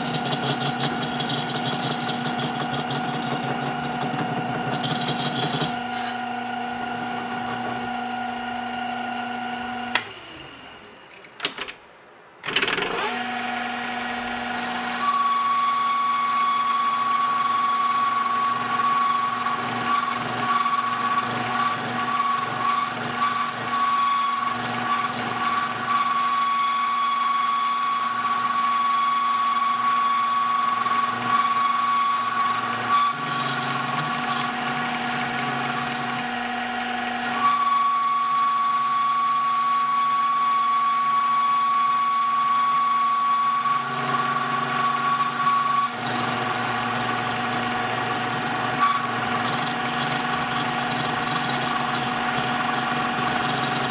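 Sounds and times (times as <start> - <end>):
lathe whining: 0.0 - 11.2, 12.5 - 53.9.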